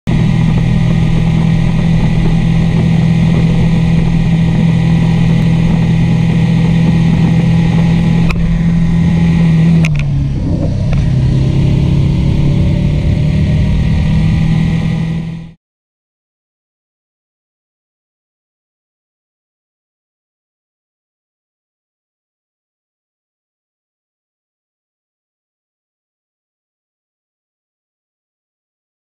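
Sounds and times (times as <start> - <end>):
wind rush on microphone: 0.1 - 15.5
motorcycle engine running: 0.1 - 15.6.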